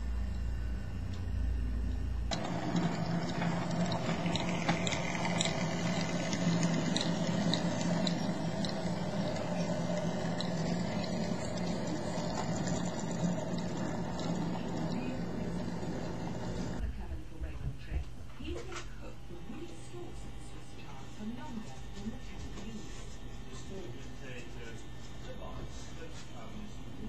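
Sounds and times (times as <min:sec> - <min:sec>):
low hum: 0:00.0 - 0:17.0
model train motor whirring: 0:02.3 - 0:16.8.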